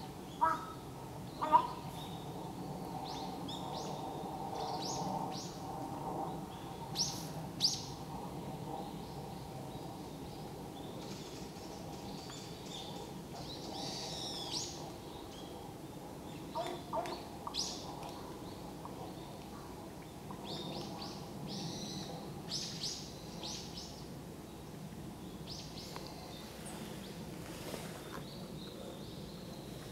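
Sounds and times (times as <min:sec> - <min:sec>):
crow calling: 0:00.4 - 0:00.8, 0:01.4 - 0:01.8.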